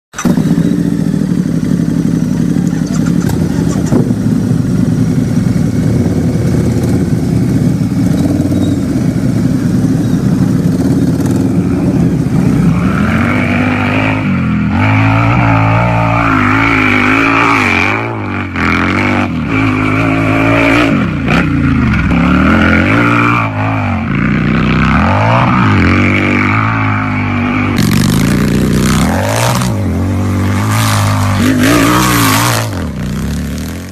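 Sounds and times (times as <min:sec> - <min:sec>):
exhaust crackles: 0:00.1 - 0:33.9
motorcycle engine idling and revving: 0:00.1 - 0:33.9.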